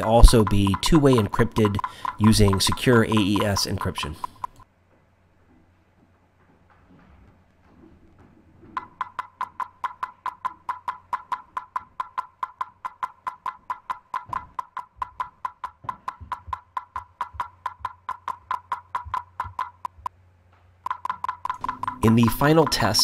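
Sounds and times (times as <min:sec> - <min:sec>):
rapid electronic clicks: 0:00.0 - 0:04.6, 0:08.8 - 0:20.1, 0:20.8 - 0:23.0.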